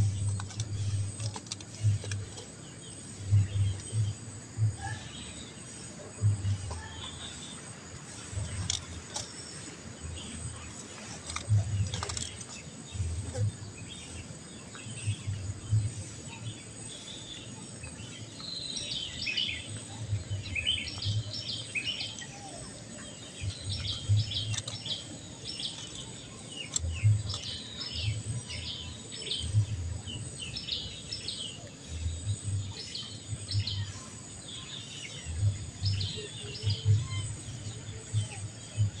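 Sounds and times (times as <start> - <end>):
low microphone rumbles: 0.0 - 2.4, 3.0 - 5.2, 6.0 - 6.9, 11.4 - 16.5, 26.8 - 31.0, 35.2 - 39.0
small birds chirping: 0.0 - 39.0.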